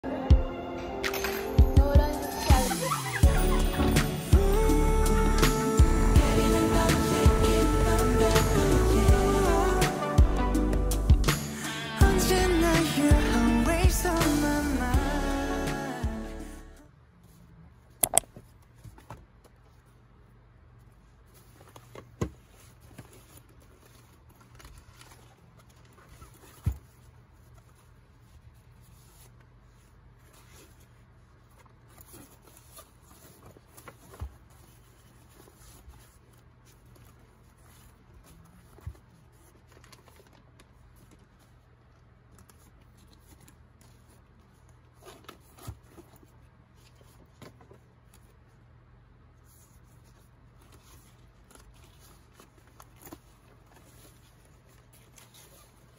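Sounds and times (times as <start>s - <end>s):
paper sheets handled: 20.9s - 48.6s, 49.4s - 55.9s.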